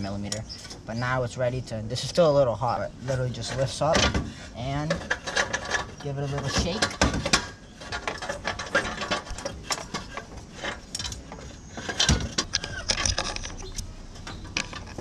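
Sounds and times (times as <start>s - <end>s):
metal pipe clanking and scraping: 1.9s - 15.0s.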